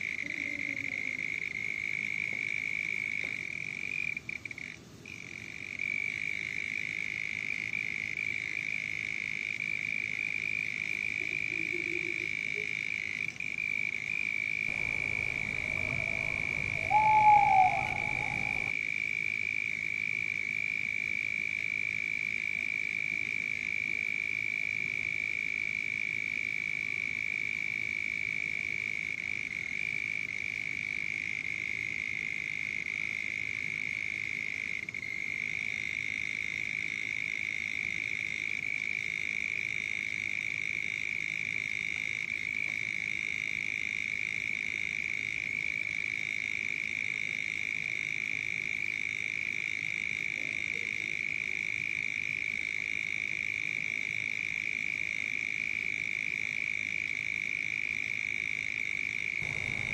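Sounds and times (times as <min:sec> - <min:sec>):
faint low rumble: 0:14.7 - 0:18.7, 0:59.4 - 0:59.9
frogs trilling: 0:14.7 - 0:18.8, 0:59.4 - 0:59.9.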